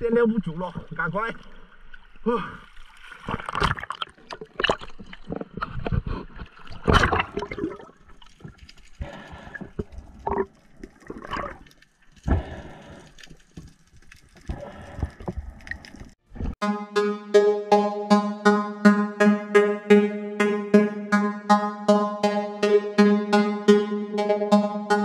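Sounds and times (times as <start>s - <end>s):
water sloshing and bubbling: 0.0s - 16.6s
electronic music: 16.6s - 25.0s.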